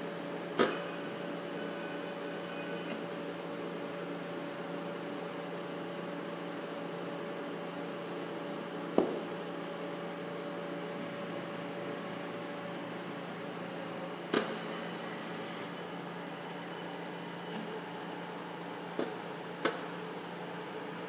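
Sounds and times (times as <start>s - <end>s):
machine hum: 9.0s - 21.0s.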